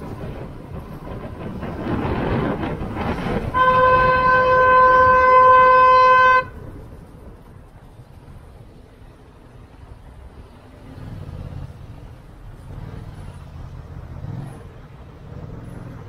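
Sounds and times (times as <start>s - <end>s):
wind and road rush: 0.0s - 16.0s
vehicle horn blast: 3.5s - 6.6s.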